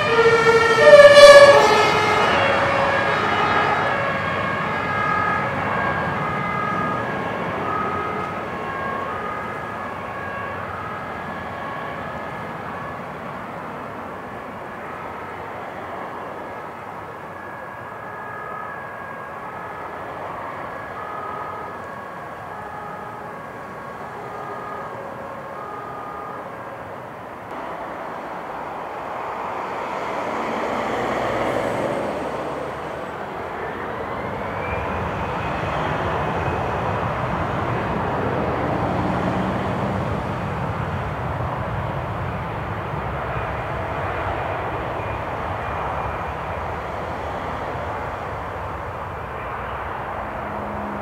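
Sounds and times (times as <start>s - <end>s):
jet engine whine: 0.0s - 51.0s
jet engines roaring: 27.5s - 51.0s.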